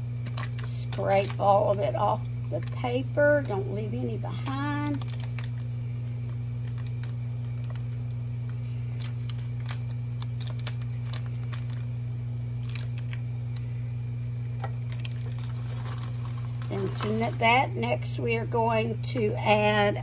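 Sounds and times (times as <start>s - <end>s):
steady low hum: 0.0s - 20.0s
spatula scraping foil and bowl: 15.2s - 17.6s.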